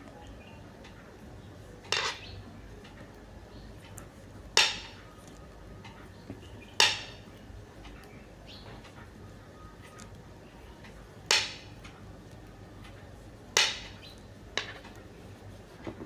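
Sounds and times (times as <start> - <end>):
knitting needles clicking: 10.8 - 15.1.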